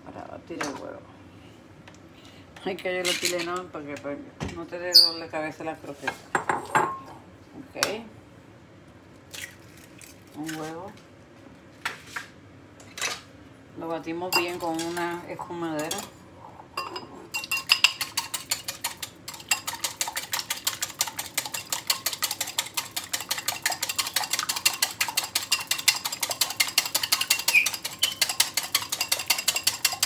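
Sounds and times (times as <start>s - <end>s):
spoon clinking against bowl: 14.4s - 14.6s, 16.8s - 20.2s, 21.4s - 30.0s.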